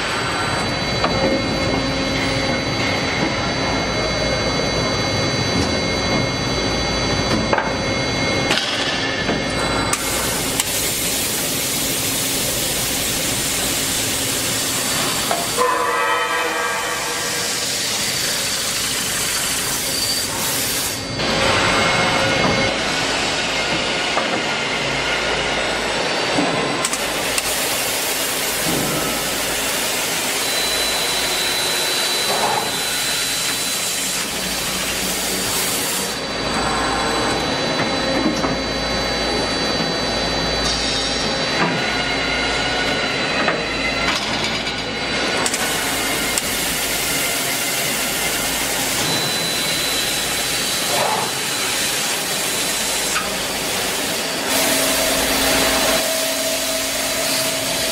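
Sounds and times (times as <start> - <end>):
drilling machine drilling steel: 26.8 - 37.4, 44.9 - 57.9.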